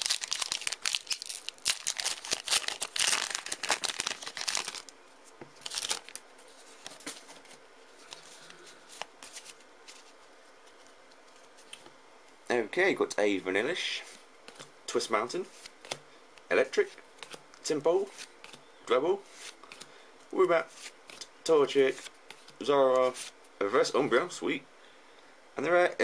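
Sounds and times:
foil wrapper crinkling and tearing: 0.0 - 4.9, 5.6 - 6.2
cards handled with clicks and rustles: 0.0 - 11.9, 16.8 - 18.7, 19.3 - 20.0, 20.7 - 23.3.

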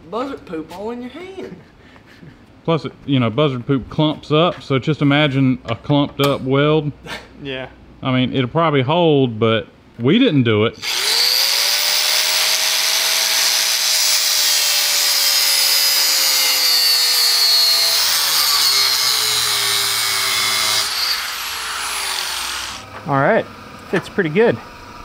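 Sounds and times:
angle grinder cutting steel: 10.8 - 22.9.

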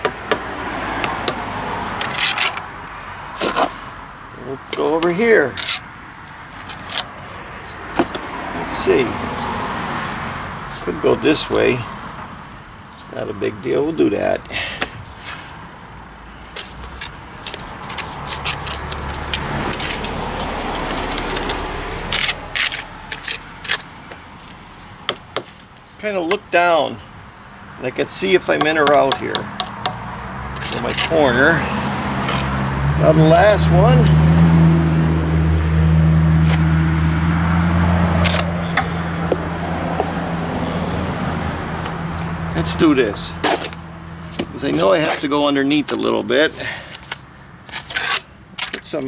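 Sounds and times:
trowel scraping brick and mortar: 16.6 - 24.6, 30.6 - 32.6, 43.4 - 45.3
sharp knocks: 28.6 - 30.0.

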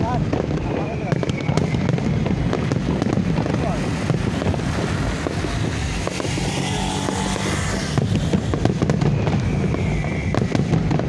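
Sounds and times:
fireworks popping and crackling: 0.0 - 11.0
low rumble: 0.0 - 11.0
vehicle engine passing: 2.8 - 9.1.

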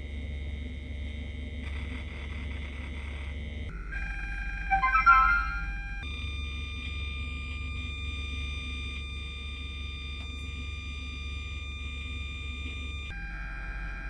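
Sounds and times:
speaker electrical hum and buzz: 0.0 - 14.0
thin high whine: 4.7 - 6.0.

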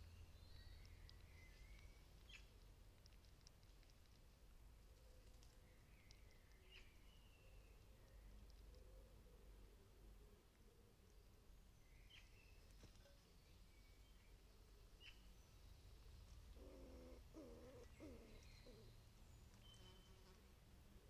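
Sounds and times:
low pitched bird calls: 16.6 - 19.0.

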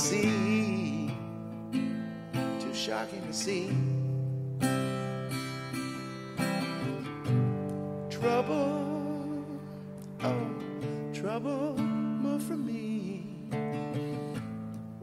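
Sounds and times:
person singing: 0.0 - 1.2, 2.5 - 5.8, 8.1 - 14.5
acoustic guitar strumming: 0.0 - 15.0.

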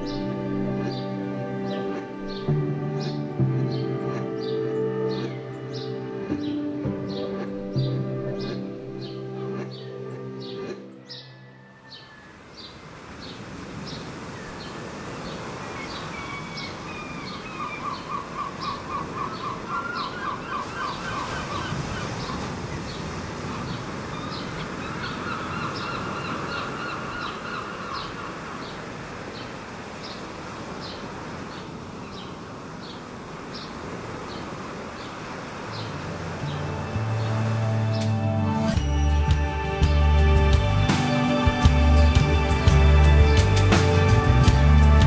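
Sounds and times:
small waves washing: 12.4 - 38.0.

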